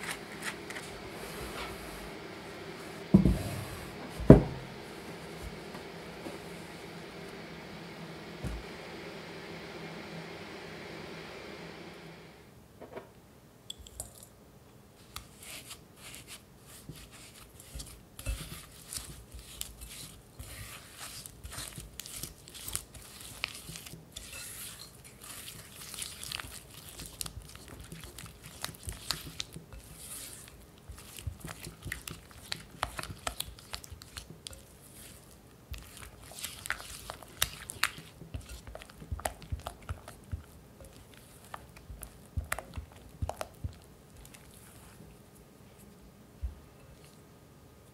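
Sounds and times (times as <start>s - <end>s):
spatula scraping glass bowl: 15.4s - 40.2s.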